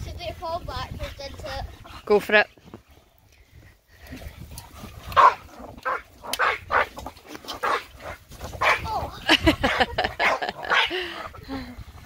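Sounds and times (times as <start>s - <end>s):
dog barking and yelping: 5.1s - 11.4s.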